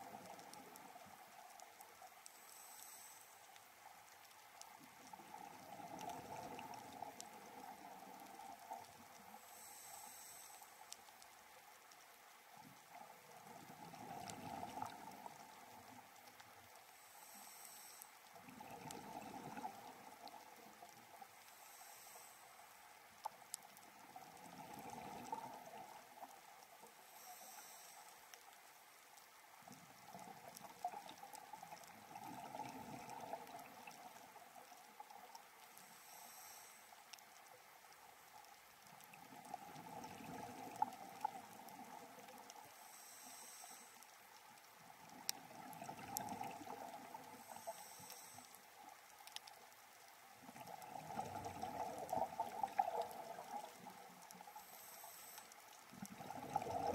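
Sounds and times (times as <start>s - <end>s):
exhale bubbling underwater: 18.4s - 20.3s, 31.9s - 34.2s, 45.2s - 47.7s, 50.4s - 54.4s, 55.9s - 56.9s.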